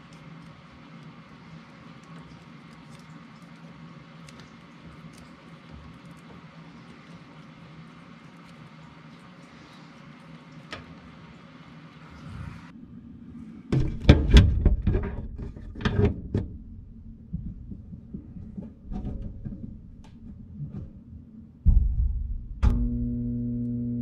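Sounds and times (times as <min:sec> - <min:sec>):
heavy knocks and clatter: 0:13.7 - 0:16.6
loud thump: 0:21.7 - 0:22.8.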